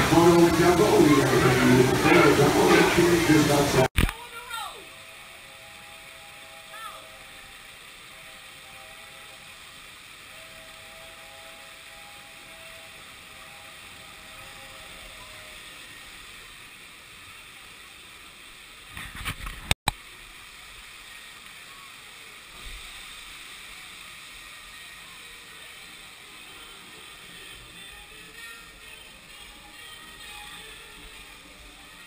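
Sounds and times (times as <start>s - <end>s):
fountain jets hissing: 0.0s - 32.0s.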